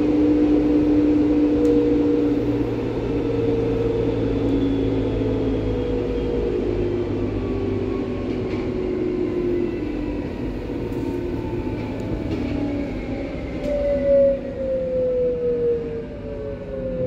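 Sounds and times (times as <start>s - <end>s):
train rumble: 0.0s - 17.0s.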